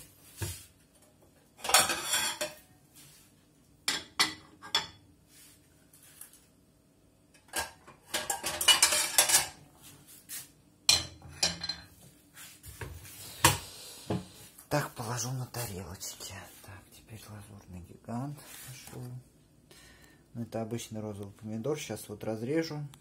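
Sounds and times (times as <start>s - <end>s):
ceramic plates clinking: 1.6s - 2.6s, 7.5s - 9.6s.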